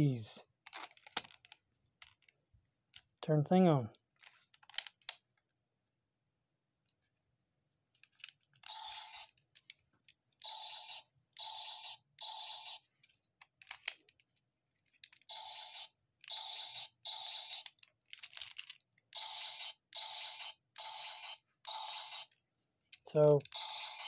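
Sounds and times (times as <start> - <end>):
plastic toy clicks: 17.6 - 19.3.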